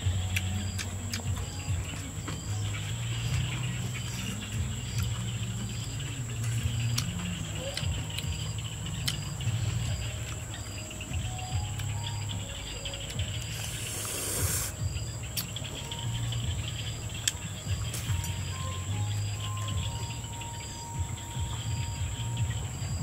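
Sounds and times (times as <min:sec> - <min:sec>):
high insect whine: 0:00.0 - 0:23.0
insects chirping in pulses: 0:00.0 - 0:23.0
person chewing: 0:06.4 - 0:10.4, 0:13.1 - 0:14.8
short rush of hiss: 0:13.7 - 0:14.8.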